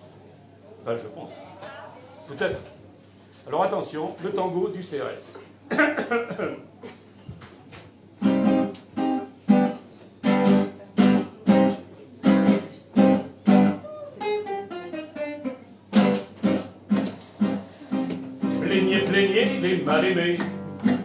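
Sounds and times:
acoustic guitar strumming chords: 8.2 - 21.0.

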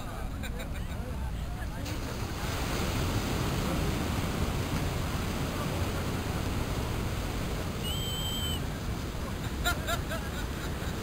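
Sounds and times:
surf rushing: 1.6 - 11.0
wind buffeting microphone: 2.0 - 11.0
short high whistle: 7.8 - 8.6.

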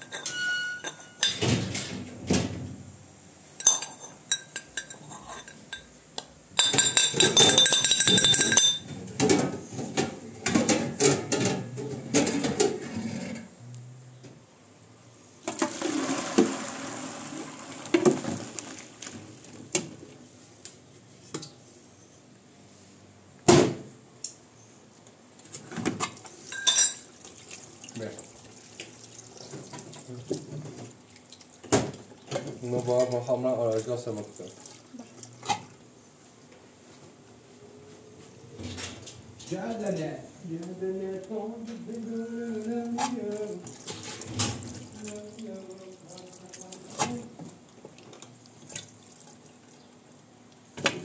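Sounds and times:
brass pestle clinking in mortar: 0.0 - 1.4, 3.6 - 9.1
metal pots clanking: 0.0 - 14.3, 26.4 - 27.1.

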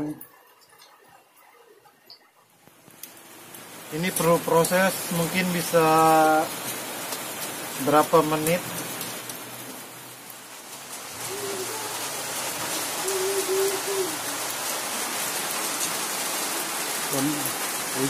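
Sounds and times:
steady rain: 0.0 - 18.0.

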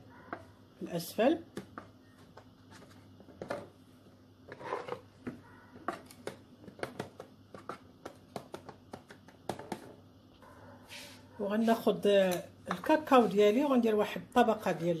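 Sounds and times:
plastic spatula scraping a bowl: 4.5 - 5.1.

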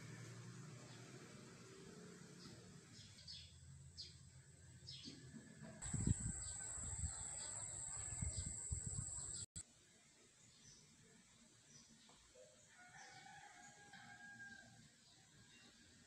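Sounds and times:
small birds chirping: 4.8 - 9.6.

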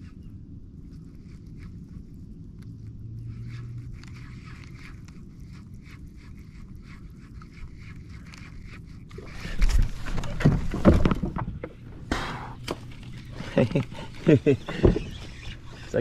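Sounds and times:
low hum: 0.0 - 16.0
loud rustling and thumping: 9.6 - 13.0.

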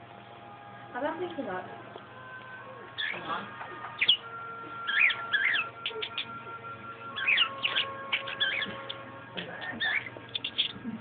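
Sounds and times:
budgerigar chattering: 3.0 - 3.3, 4.0 - 4.2, 4.9 - 6.3, 7.2 - 10.8.

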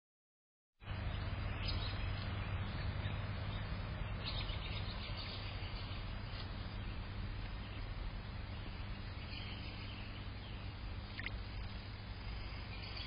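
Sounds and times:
low outdoor hum: 0.8 - 13.0
faint high chirps: 4.2 - 13.0.

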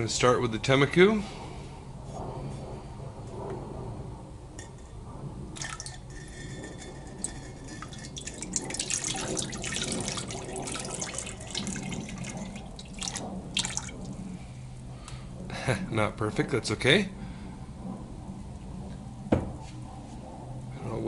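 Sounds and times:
liquid glaze pouring and splashing: 5.6 - 14.2.

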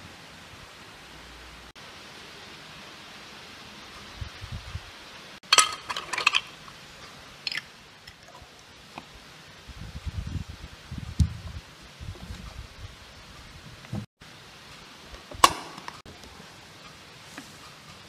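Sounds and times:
steady hiss: 0.0 - 18.0
glassware clinking: 5.4 - 6.6.

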